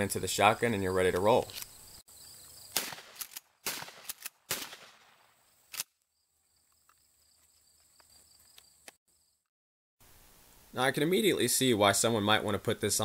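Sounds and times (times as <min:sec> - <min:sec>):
shotgun shots: 0:02.7 - 0:05.8.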